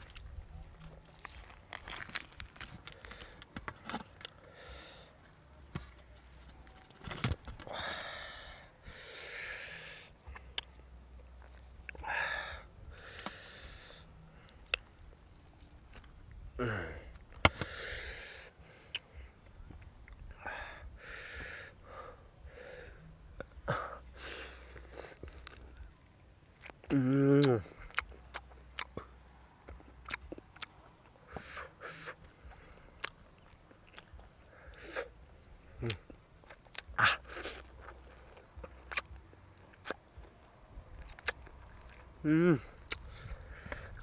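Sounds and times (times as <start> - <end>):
mouth clicks: 17.1 - 19.1, 26.6 - 29.1, 35.8 - 40.4, 41.0 - 44.0
man sucking and chewing: 26.6 - 29.0, 31.3 - 35.2, 35.8 - 40.4, 41.0 - 44.0.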